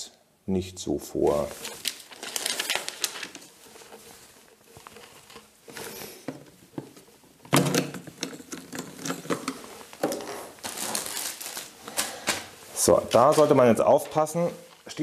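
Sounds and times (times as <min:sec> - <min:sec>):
soft rustling: 0:01.3 - 0:07.4, 0:09.5 - 0:15.0
clatter of handled plastic: 0:01.6 - 0:12.5.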